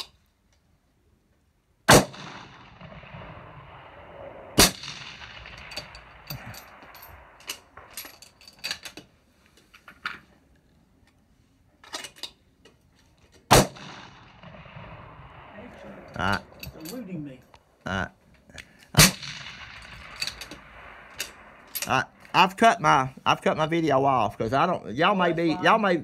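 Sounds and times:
rifle shots with echo: 1.9s - 8.4s, 13.5s - 17.3s, 19.0s - 22.6s.

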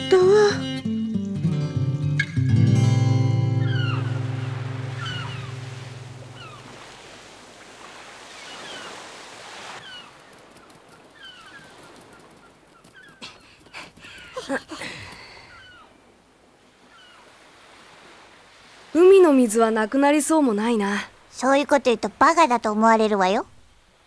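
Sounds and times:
plucked guitar chord: 0.0s - 4.9s
gulls calling: 3.0s - 18.2s
surf washing: 3.3s - 22.8s.

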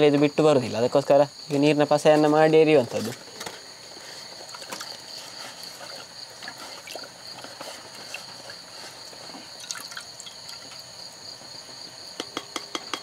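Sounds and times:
water dripping and splashing: 4.4s - 8.6s, 9.3s - 10.9s.

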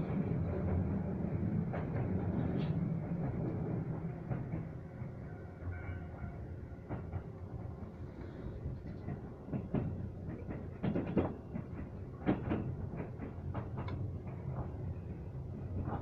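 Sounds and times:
train running gear rumble: 0.0s - 16.0s
wheels clacking over rail joints: 8.8s - 16.0s.

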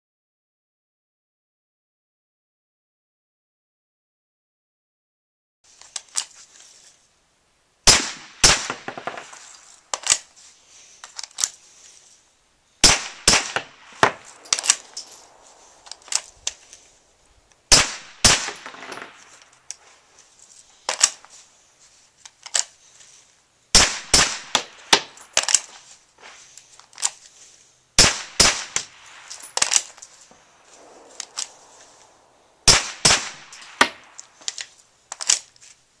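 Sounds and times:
suppressed pistol shots: 7.9s - 9.5s, 12.8s - 16.2s, 17.7s - 19.2s, 23.8s - 25.1s, 28.0s - 29.3s, 30.8s - 34.2s.

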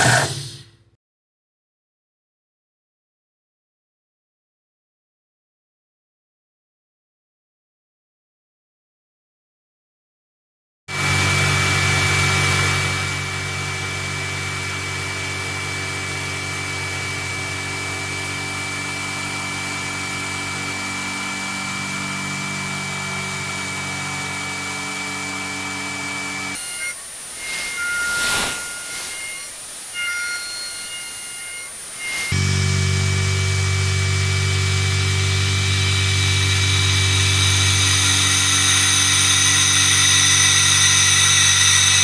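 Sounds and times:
milling machine cutting metal: 10.9s - 42.0s
spindle humming and whining: 10.9s - 42.0s.

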